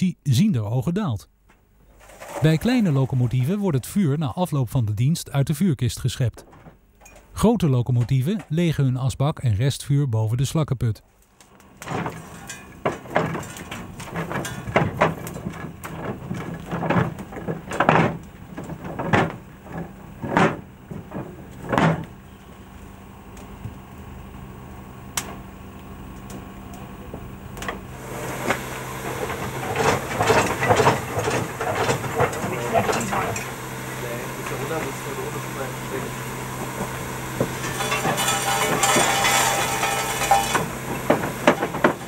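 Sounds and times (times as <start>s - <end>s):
metal clanking and rattling: 11.7s - 22.2s, 28.2s - 33.6s, 36.5s - 42.0s
ash and clinker dropping: 11.8s - 20.6s, 37.5s - 42.0s.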